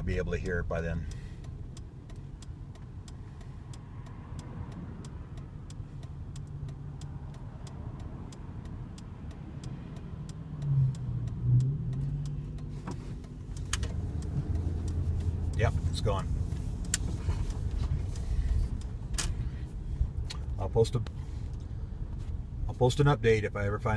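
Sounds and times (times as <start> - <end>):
light regular ticking: 0.0 - 23.9
truck engine accelerating: 3.9 - 19.3.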